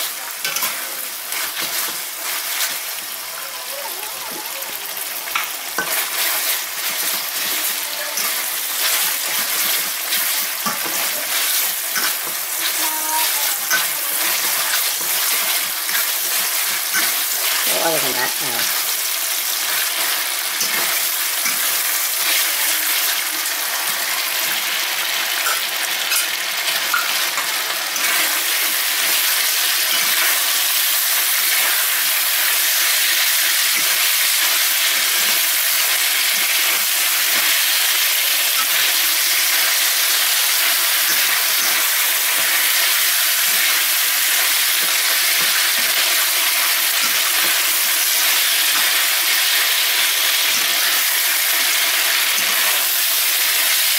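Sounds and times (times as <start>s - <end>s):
food sizzling in a wok: 0.0s - 53.9s
metal spatula stirring: 5.8s - 23.2s.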